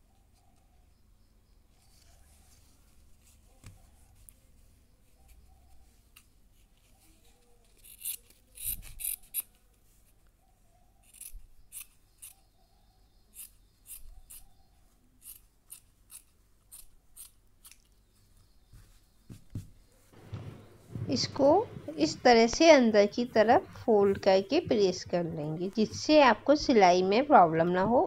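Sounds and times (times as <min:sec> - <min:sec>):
scissors snipping: 0:07.7 - 0:09.5, 0:11.1 - 0:12.4, 0:15.2 - 0:17.9.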